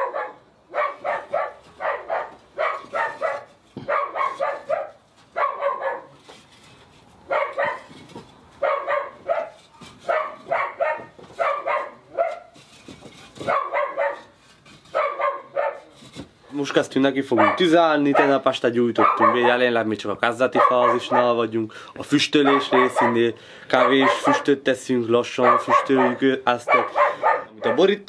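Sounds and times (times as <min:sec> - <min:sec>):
dog barking: 0:00.0 - 0:06.2, 0:07.3 - 0:07.9, 0:08.6 - 0:12.6, 0:13.4 - 0:14.3, 0:14.9 - 0:15.9, 0:17.4 - 0:19.6, 0:20.6 - 0:21.4, 0:22.4 - 0:24.5, 0:25.4 - 0:27.9.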